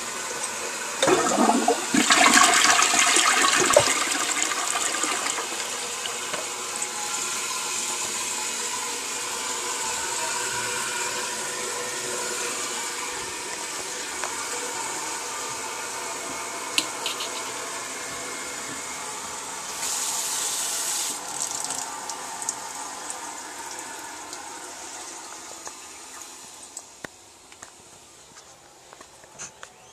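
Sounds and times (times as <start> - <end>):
toilet refilling with running water: 0.0 - 27.5.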